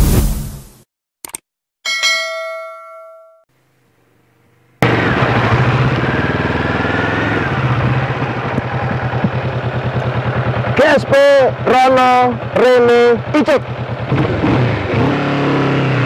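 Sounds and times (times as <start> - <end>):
bell-like ding: 1.8 - 3.5
motorcycle engine: 4.8 - 16.0.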